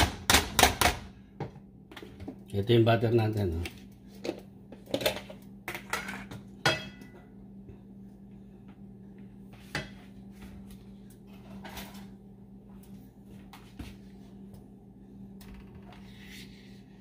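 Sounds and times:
kitchen utensils clinking: 4.9s - 7.3s.

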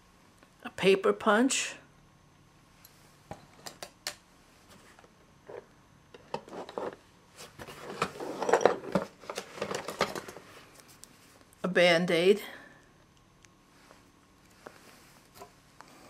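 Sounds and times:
small objects rattling and rustling: 7.6s - 10.5s.

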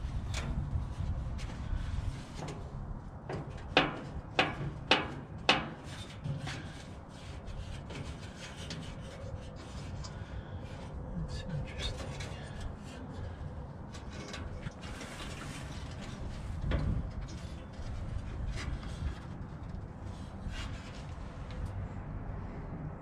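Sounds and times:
metal grill parts rattling: 3.2s - 10.9s, 11.8s - 21.0s.

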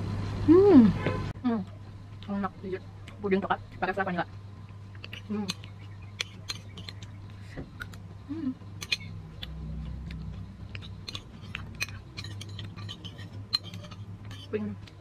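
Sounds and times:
steady low hum: 0.0s - 15.0s
chewing and mouth sounds: 4.6s - 8.1s, 8.7s - 15.0s.

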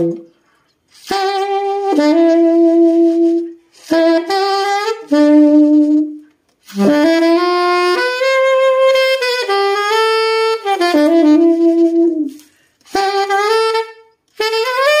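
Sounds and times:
tenor saxophone long notes: 0.0s - 15.0s
breath pauses: 0.3s - 0.8s, 12.4s - 12.9s.

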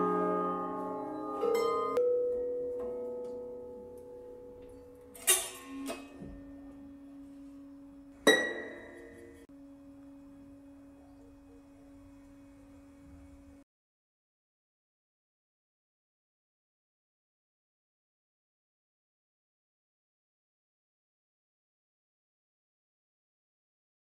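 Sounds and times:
sparse instrumental notes ringing: 0.0s - 12.9s
quiet held tone: 0.9s - 13.6s.

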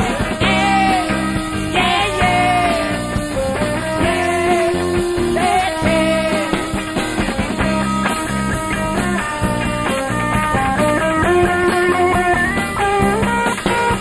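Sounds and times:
bending lead guitar notes: 0.0s - 14.0s
rock band playing live: 0.0s - 14.0s.

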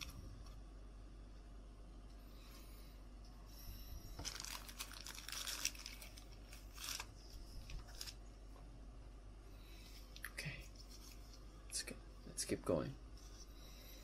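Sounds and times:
cards and plastic sleeves rustling: 4.2s - 8.2s, 9.9s - 11.5s.

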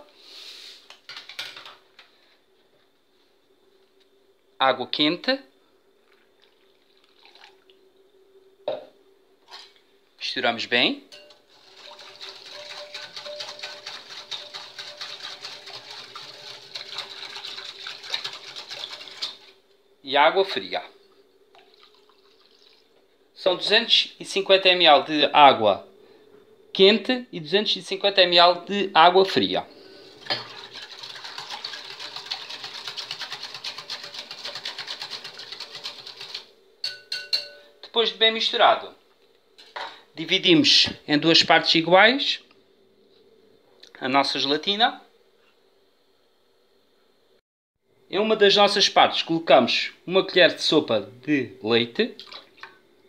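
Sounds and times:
whisk ticking against glass bowl: 11.1s - 19.5s, 30.4s - 37.6s.

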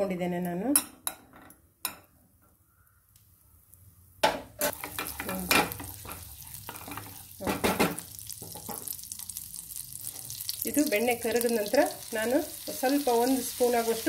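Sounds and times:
spoon scraping pan: 4.6s - 9.0s
butter sizzling in pan: 4.6s - 14.0s.

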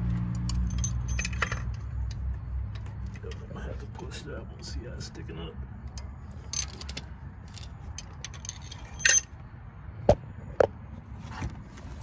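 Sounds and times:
metal pushrods clinking: 0.4s - 2.2s, 5.9s - 9.4s.

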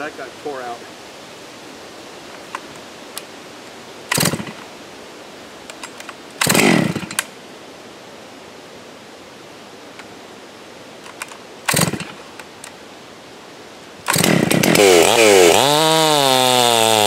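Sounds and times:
chainsaw starter cord pulls: 4.1s - 4.6s, 5.7s - 7.3s, 11.1s - 12.2s, 14.1s - 17.0s.

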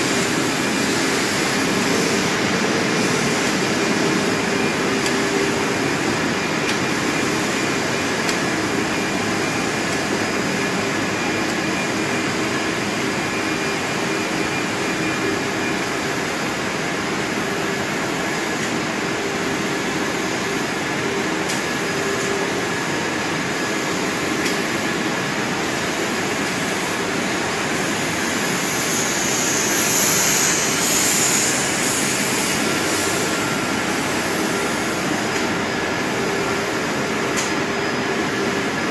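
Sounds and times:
loud high hiss: 0.0s - 11.1s, 19.4s - 38.9s
coating machinery running: 0.0s - 38.9s.

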